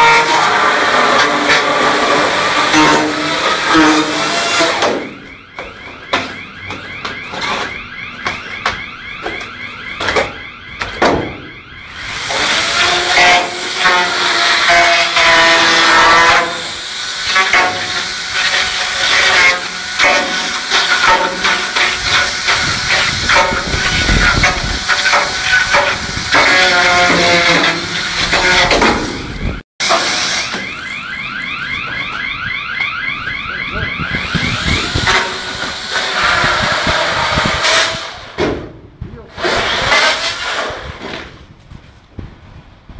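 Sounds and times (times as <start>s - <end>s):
power saw cutting insulation: 0.0s - 5.4s, 11.9s - 31.1s, 34.0s - 38.5s, 39.2s - 41.4s.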